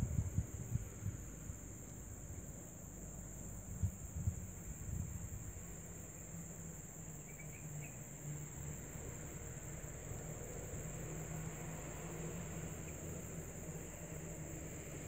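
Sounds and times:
faint chirps: 0:07.2 - 0:08.0.

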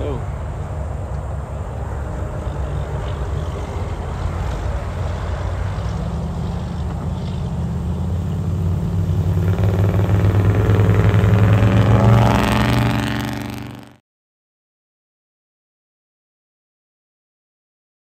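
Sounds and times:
car engine driving by: 0:00.0 - 0:14.0.

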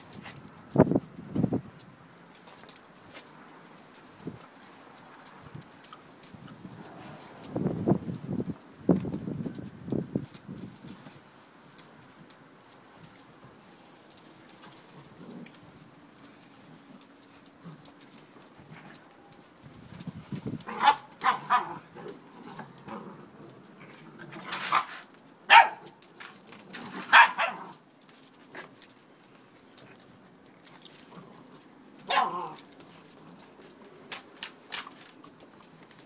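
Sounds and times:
dogs play-barking and yapping: 0:14.2 - 0:19.5, 0:20.6 - 0:28.8, 0:29.7 - 0:35.7.

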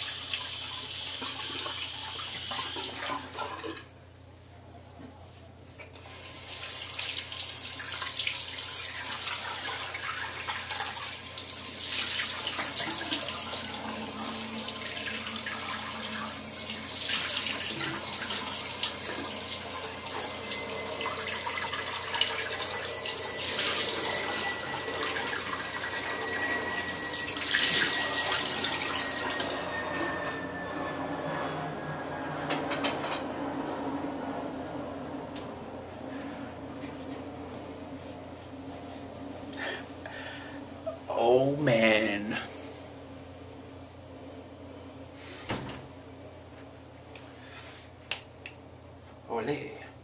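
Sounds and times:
tap water running into sink: 0:00.0 - 0:03.9, 0:06.3 - 0:29.5
faint high tone sinking: 0:12.3 - 0:37.4.

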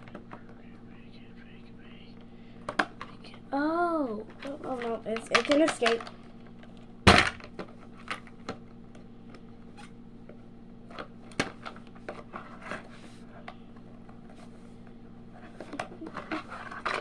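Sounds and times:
plastic toy parts knocking: 0:04.4 - 0:06.1.

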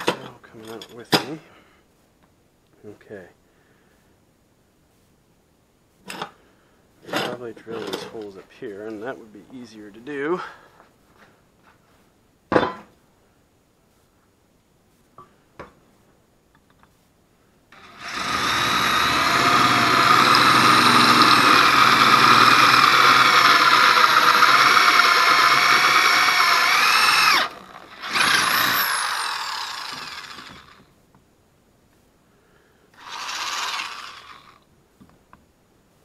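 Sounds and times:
electric drill boring through steel: 0:17.8 - 0:30.8, 0:33.0 - 0:34.6.

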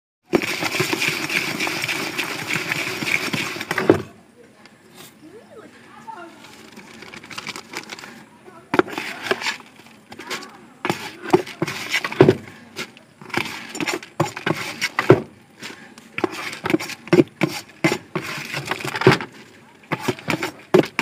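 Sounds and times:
dry rustling: 0:05.8 - 0:21.0.

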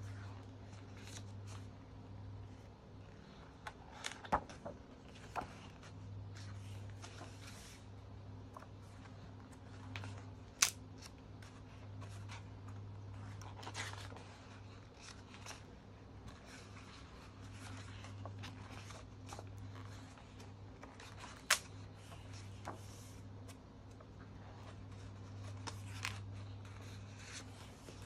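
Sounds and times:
magazine pages rustling: 0:00.0 - 0:01.8, 0:02.5 - 0:28.0
low steady hum: 0:00.0 - 0:28.0
page snaps: 0:10.0 - 0:11.2, 0:21.2 - 0:21.8.

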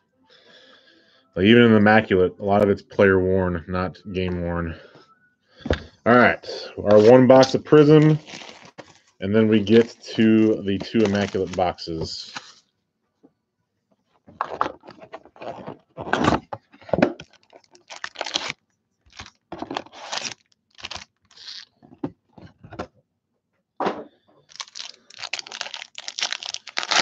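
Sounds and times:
foil pack crinkling: 0:07.0 - 0:12.6, 0:17.2 - 0:21.7, 0:24.5 - 0:27.0
cardboard rustling and scraping: 0:14.3 - 0:17.6.

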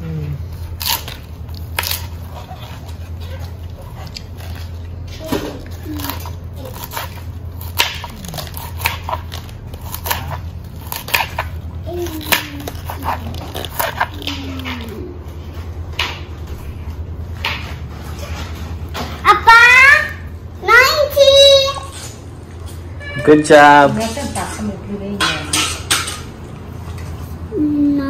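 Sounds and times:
steady low hum: 0:00.0 - 0:28.0
knife chopping on wooden board: 0:09.9 - 0:11.6.

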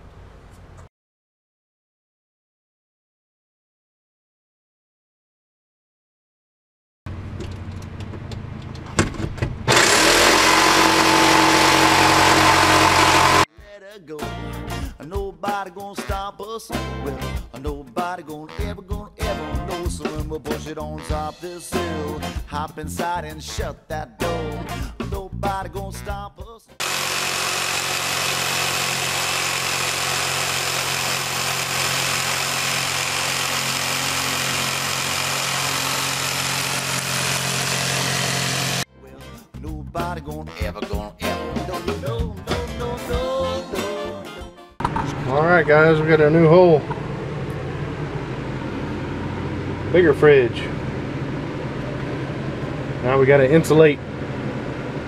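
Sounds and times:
jigsaw cutting wood: 0:09.7 - 0:13.5, 0:26.8 - 0:38.9.

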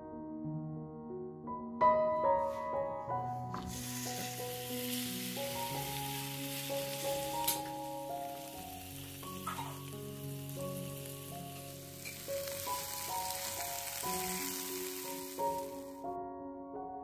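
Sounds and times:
background music of held notes: 0:01.8 - 0:17.0
chicken sizzling in a pan: 0:03.6 - 0:16.1.

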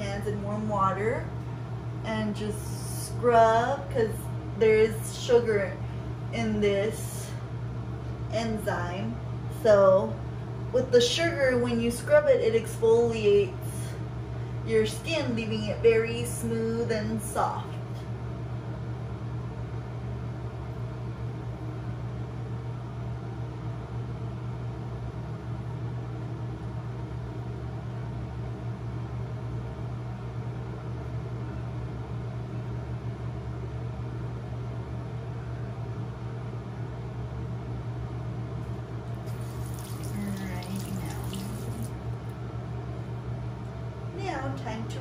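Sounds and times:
water running in sink: 0:39.1 - 0:42.3.

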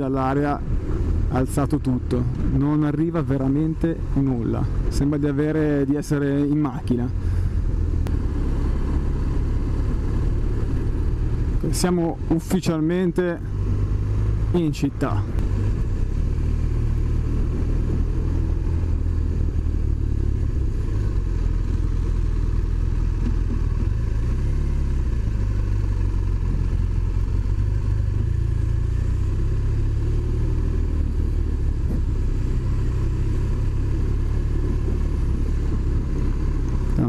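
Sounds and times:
motorcycle engine rumbling: 0:00.0 - 0:37.0.

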